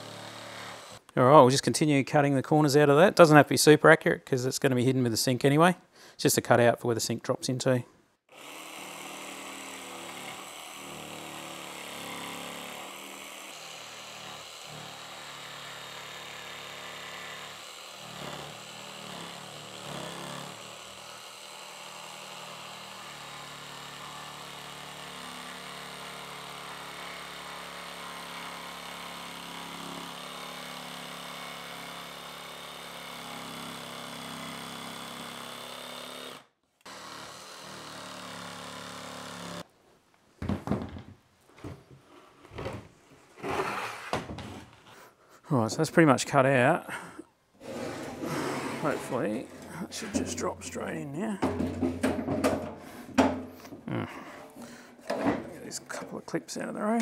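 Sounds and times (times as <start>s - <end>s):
jigsaw sawing plywood: 0.0s - 1.0s, 8.3s - 39.7s, 43.4s - 45.0s, 47.6s - 54.8s
loud knocks: 51.4s - 53.5s.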